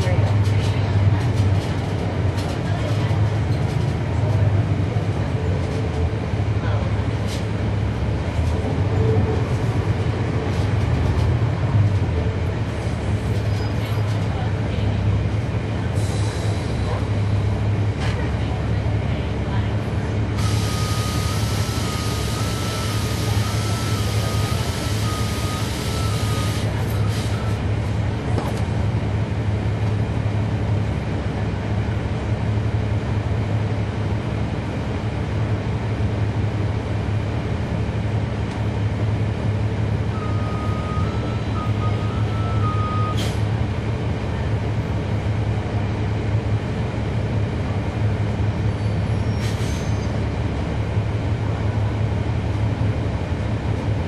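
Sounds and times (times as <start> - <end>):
diesel bus engine running: 0.0 - 54.0.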